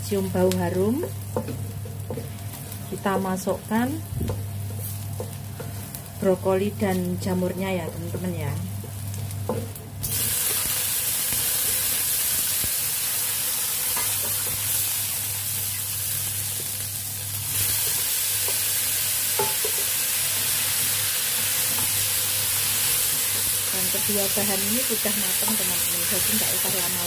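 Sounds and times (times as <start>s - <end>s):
vegetables sizzling in hot oil: 0.0s - 27.0s
wooden spatula scraping vegetables: 4.3s - 6.0s.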